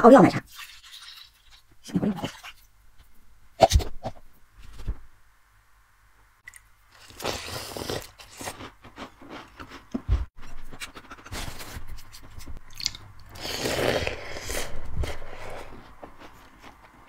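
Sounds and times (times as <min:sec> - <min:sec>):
crunching and chewing cookies: 0:06.9 - 0:17.0.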